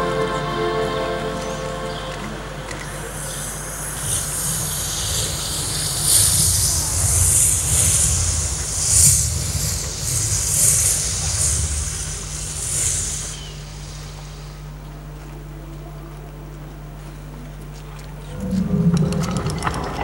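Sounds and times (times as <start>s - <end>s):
rushing hiss over loudspeakers: 0.0s - 15.6s
low rumble: 18.2s - 20.0s.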